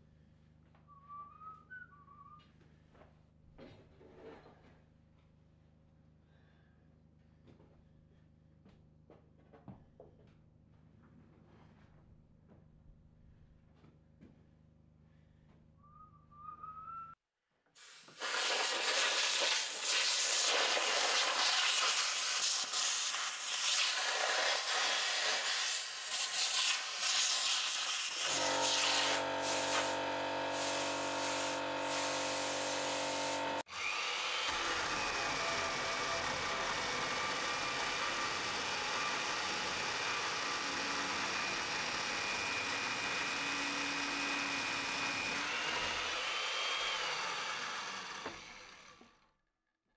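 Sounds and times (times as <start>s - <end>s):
compressed air blow gun hissing: 17.8s - 33.6s
power tool motor whining: 22.4s - 49.2s.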